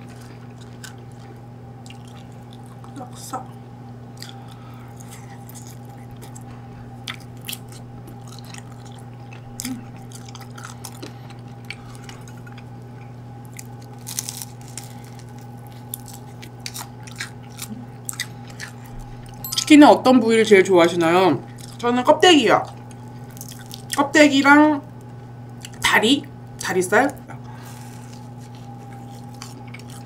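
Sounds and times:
crunchy chewing of fried chicken: 0.0 - 3.2, 3.8 - 19.4, 21.5 - 21.8, 22.6 - 24.1, 24.9 - 25.9, 26.5 - 30.0
low hum: 0.0 - 30.0.

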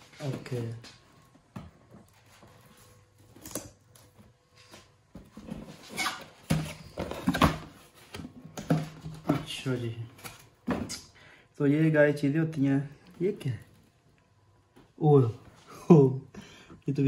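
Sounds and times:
cardboard rustling and scraping: 4.6 - 11.0.

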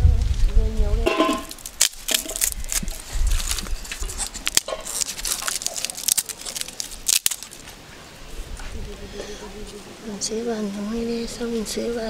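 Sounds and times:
twigs rustling: 1.0 - 9.0
charcoal clicking and knocking on metal: 1.1 - 7.6.

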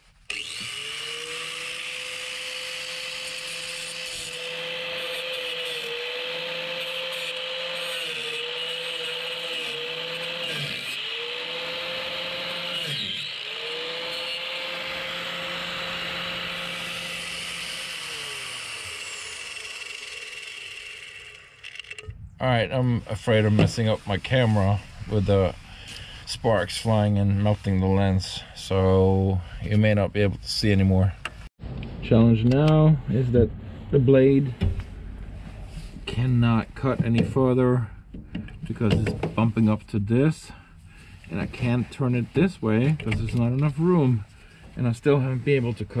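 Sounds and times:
angle grinder cutting metal: 0.3 - 22.0.

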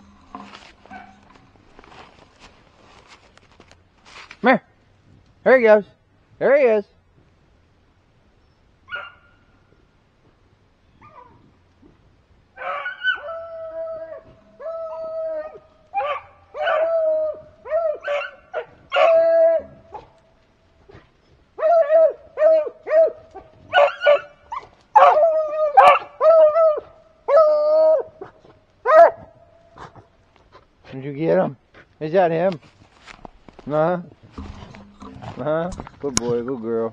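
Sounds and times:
hounds baying: 12.6 - 20.2, 20.8 - 30.1.

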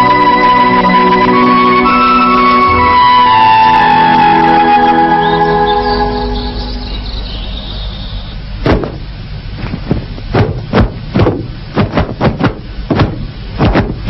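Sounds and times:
sharp knocks and thuds: 8.6 - 14.0.

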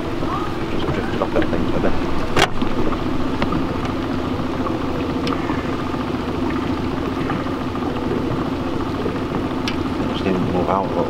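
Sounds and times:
boat motor running: 0.0 - 11.0.

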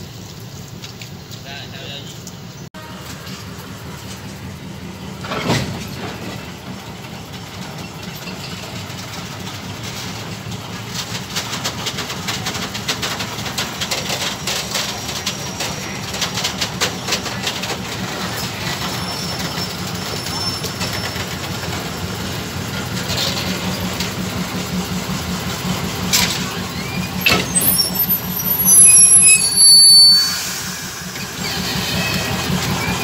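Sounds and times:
diesel locomotive engine running: 0.0 - 33.0
rolling wagons clicking and rattling: 5.1 - 29.8
loud metal clank: 27.2 - 28.8.

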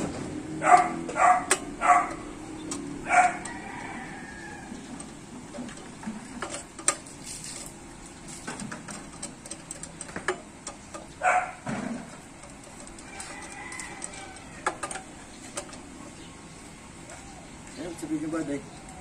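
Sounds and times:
chicken calling: 17.0 - 17.8.

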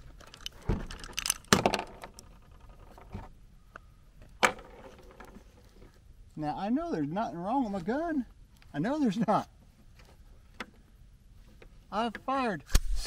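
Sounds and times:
rifle bolt metallic clacks: 0.2 - 2.2.

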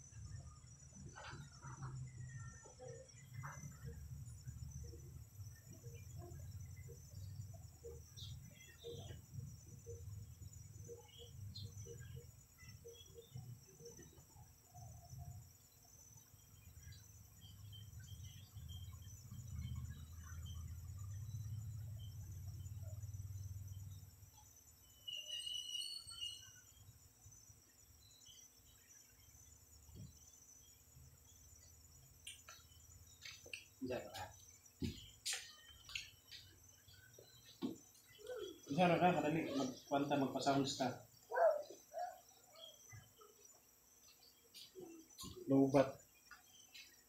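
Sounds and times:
insects trilling: 0.0 - 47.0.

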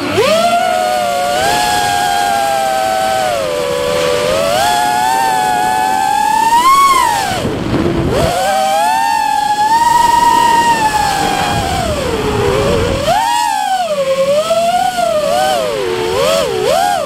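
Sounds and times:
drone motors whining: 0.0 - 17.0
rush of air: 6.9 - 13.2.

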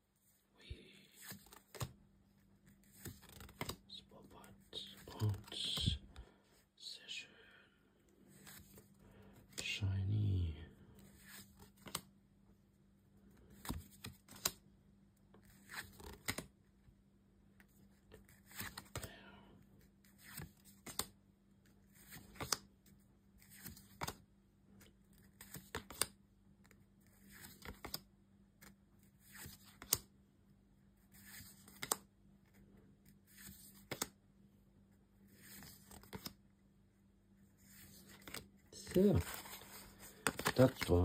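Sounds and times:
trading cards sliding and snapping: 1.2 - 1.9, 2.8 - 3.8, 11.2 - 12.1, 13.5 - 14.6, 15.6 - 16.5, 20.2 - 21.1, 22.0 - 22.6, 25.3 - 28.0, 29.3 - 30.1, 31.2 - 32.1, 33.3 - 34.2, 35.4 - 36.4, 37.7 - 41.0
faint steady hum: 3.8 - 11.3.

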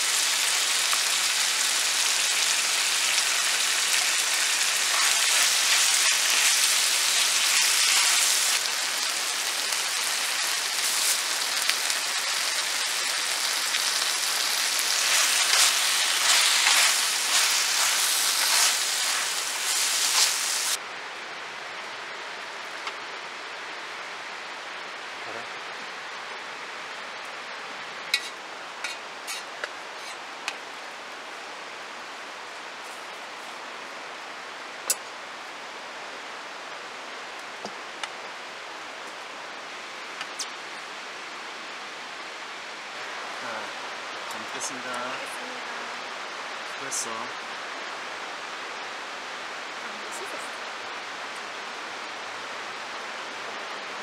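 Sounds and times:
food sizzling in a wok: 0.0 - 20.8, 28.1 - 30.2
steady hiss: 0.0 - 54.0.

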